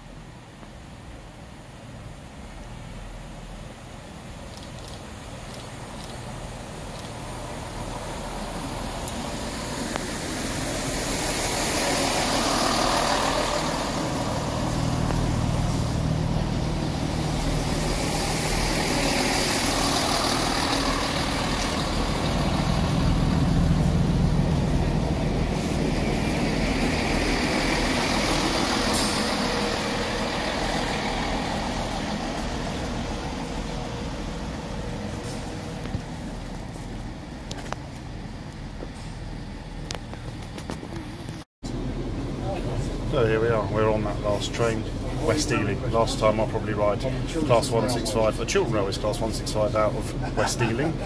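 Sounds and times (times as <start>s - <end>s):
diesel train engines running: 0.0s - 51.0s.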